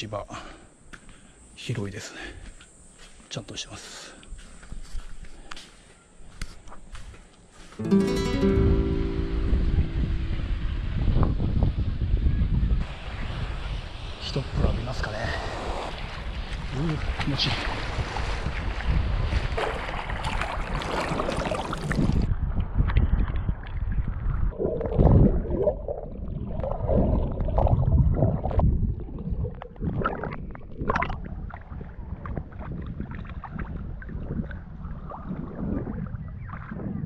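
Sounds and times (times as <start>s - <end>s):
sea water splashing and sloshing: 12.8s - 36.3s
underwater gurgling: 24.5s - 34.6s.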